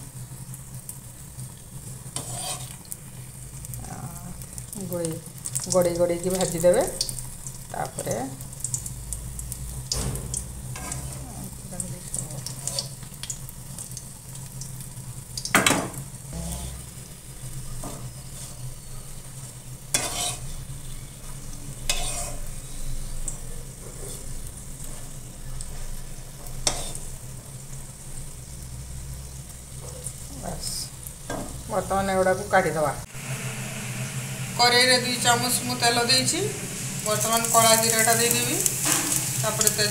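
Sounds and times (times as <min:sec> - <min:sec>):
balls sizzling in oil: 0:00.0 - 0:39.9
spatula scraping pan: 0:02.1 - 0:02.9, 0:10.7 - 0:11.4, 0:16.3 - 0:17.0, 0:17.8 - 0:19.1, 0:19.9 - 0:20.7, 0:21.8 - 0:22.8, 0:26.6 - 0:27.0.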